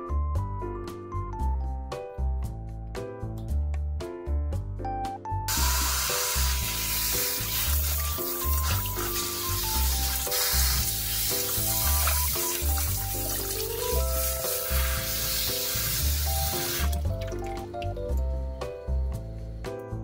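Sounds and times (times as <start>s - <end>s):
background music with steady beat: 0.0s - 20.0s
tap water running and splashing: 5.5s - 18.2s.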